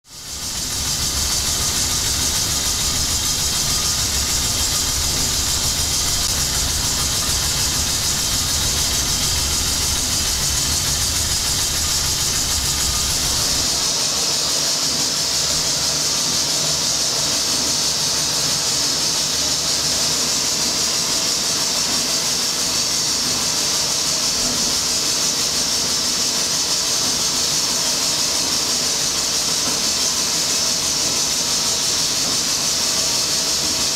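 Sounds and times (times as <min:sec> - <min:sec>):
fan hissing: 0:00.0 - 0:21.3
low machinery rumble: 0:00.3 - 0:13.8.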